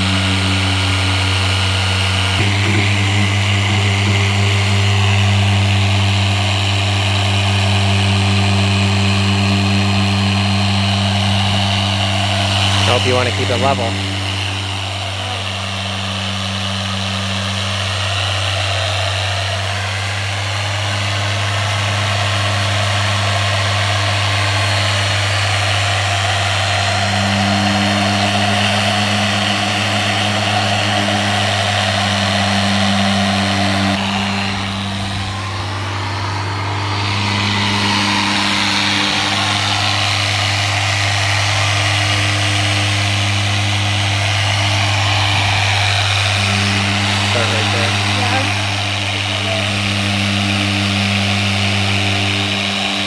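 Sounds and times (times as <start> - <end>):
electric polisher running: 0.0 - 53.0.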